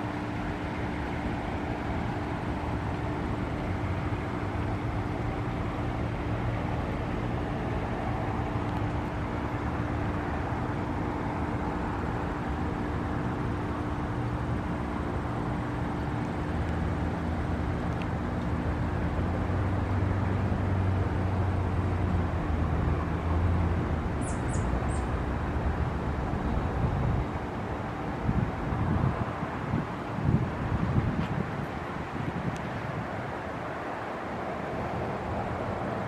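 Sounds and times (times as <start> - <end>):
distant road traffic hum: 0.0 - 36.0
high bird chirps: 24.2 - 25.1.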